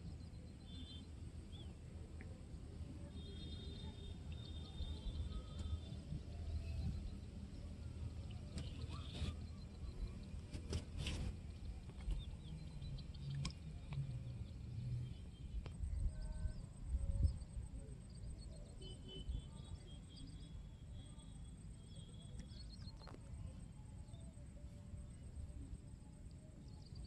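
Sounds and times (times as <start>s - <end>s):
faint birds chirping: 0.0s - 27.0s
wind rumble on microphone: 5.9s - 18.4s.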